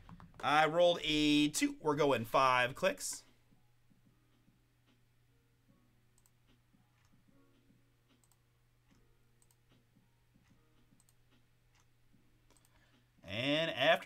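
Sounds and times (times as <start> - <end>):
computer mouse clicks: 6.2 - 7.2, 8.1 - 9.8, 10.4 - 11.9, 12.5 - 13.0.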